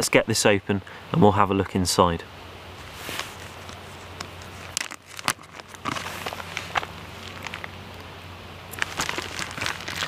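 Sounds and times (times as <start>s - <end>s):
plastic bag crinkling: 4.4s - 7.7s, 8.7s - 10.0s.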